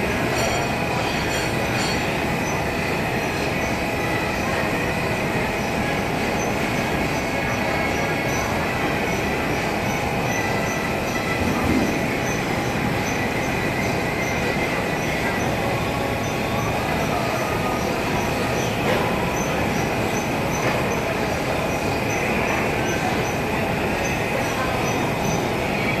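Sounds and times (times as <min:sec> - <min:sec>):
machinery running: 0:00.0 - 0:26.0.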